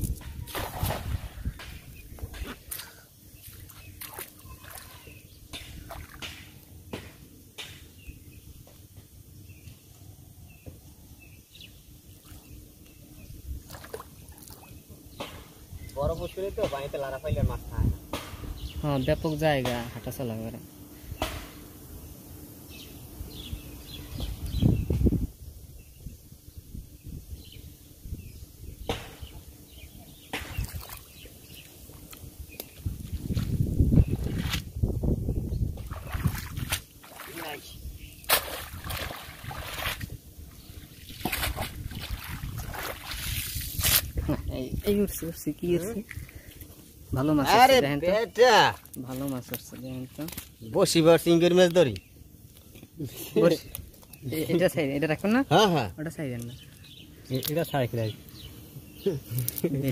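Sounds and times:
net and rope rustling: 0.0s - 5.2s, 35.7s - 40.2s, 40.8s - 44.4s
small birds chirping: 0.0s - 59.9s
net splashing in water: 0.5s - 1.3s, 35.8s - 37.5s, 38.3s - 40.0s, 41.1s - 43.6s
sharp splashing swishes: 0.5s - 1.4s, 38.3s - 40.1s, 41.2s - 44.1s.

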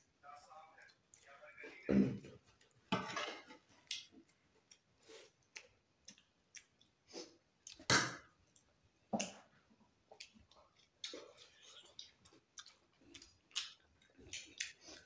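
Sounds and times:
chewing and mouth noises: 3.8s - 7.9s, 8.5s - 15.0s.

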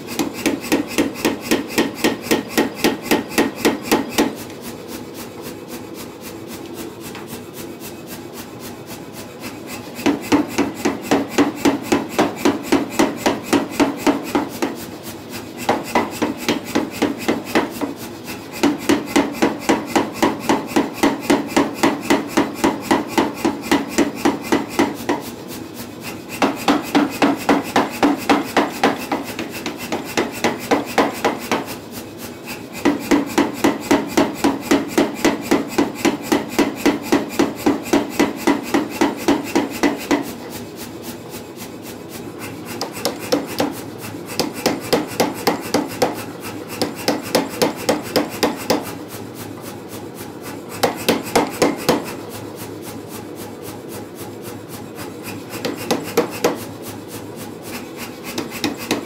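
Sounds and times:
power hammer pounding hot steel: 0.0s - 53.6s, 54.2s - 59.0s.

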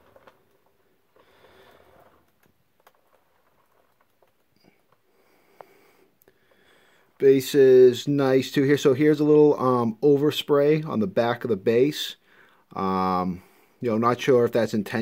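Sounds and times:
faint breath: 4.6s - 7.2s, 12.2s - 12.7s.

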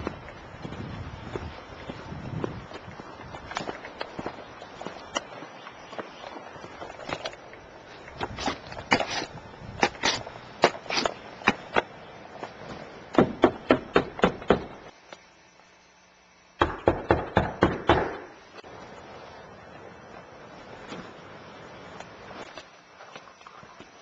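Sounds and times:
sharp knocks: 13.1s - 14.8s, 16.6s - 18.3s.

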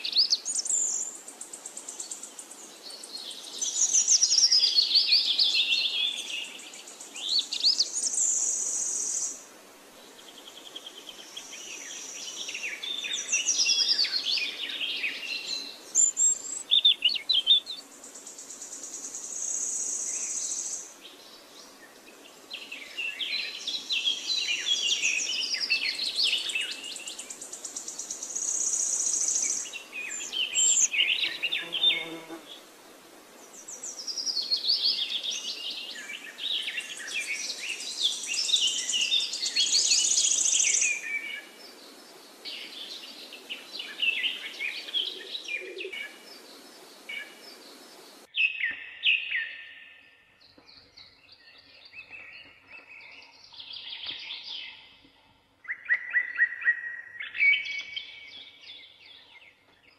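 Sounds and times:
high insect buzz: 30.7s - 32.7s.

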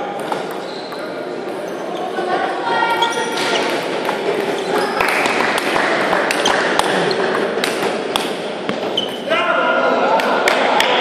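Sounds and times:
murmur of hall noise: 0.0s - 11.0s.

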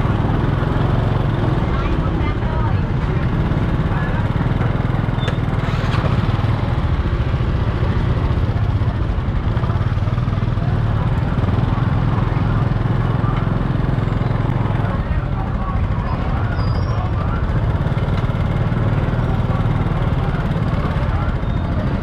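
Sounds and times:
faint market chatter: 0.0s - 22.0s
motorcycle engine idling: 0.0s - 22.0s.

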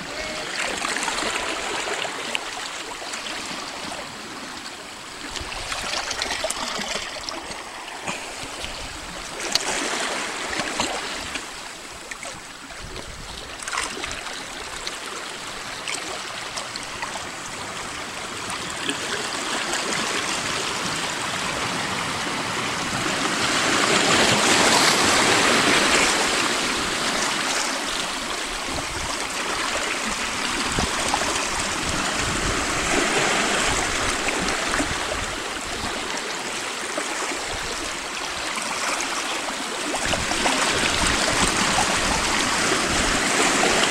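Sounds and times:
waves lapping over rocks: 0.0s - 43.9s.

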